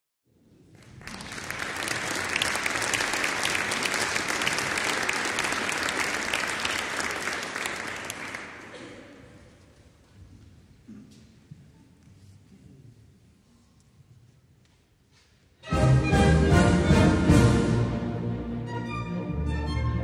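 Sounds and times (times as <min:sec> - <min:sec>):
audience applauding: 0:00.7 - 0:09.1.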